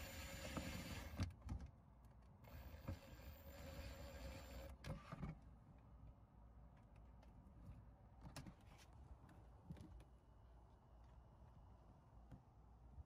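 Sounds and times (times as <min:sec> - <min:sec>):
cordless drill whirring: 0:00.0 - 0:01.2, 0:02.4 - 0:04.7.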